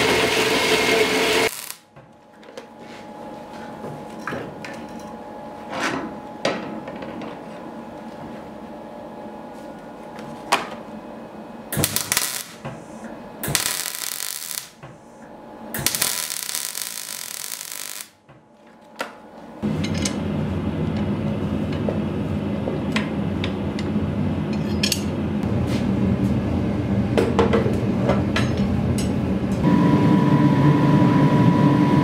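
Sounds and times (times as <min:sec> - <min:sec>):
crackling welding arc: 0:01.3 - 0:01.9, 0:11.8 - 0:14.8, 0:15.8 - 0:18.2
steady hum: 0:01.4 - 0:04.0, 0:07.8 - 0:32.0.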